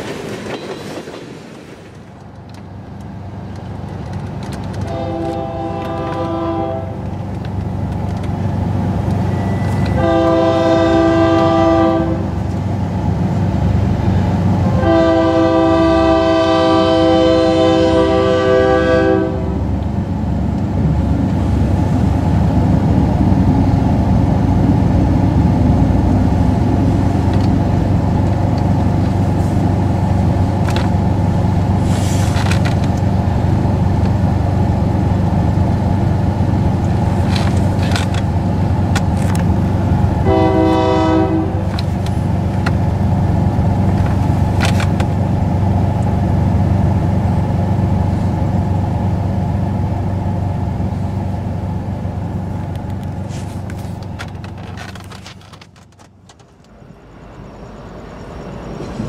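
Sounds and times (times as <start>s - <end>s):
freight train rumbling: 0.0s - 59.0s
locomotive horn blasts: 4.8s - 7.0s, 9.4s - 12.4s, 14.6s - 19.7s, 40.2s - 41.8s.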